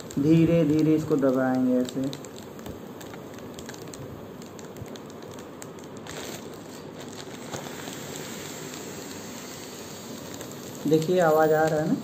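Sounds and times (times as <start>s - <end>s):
foil balloon crinkling: 0.0s - 12.0s
air hissing out: 6.0s - 12.0s.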